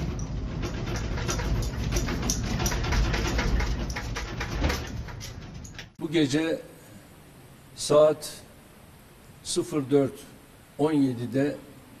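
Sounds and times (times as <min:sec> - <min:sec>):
house contents rattling: 0:00.0 - 0:06.0.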